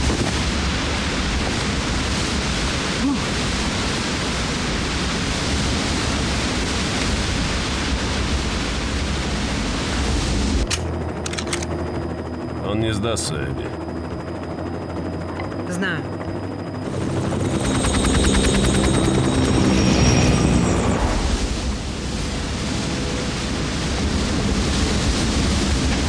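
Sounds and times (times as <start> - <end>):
helicopter cabin hum: 9.0 - 26.0.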